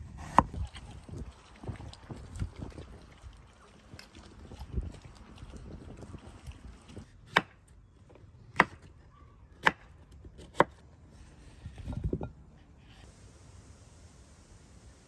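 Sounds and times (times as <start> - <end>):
knife chopping on wooden board: 8.6 - 8.8.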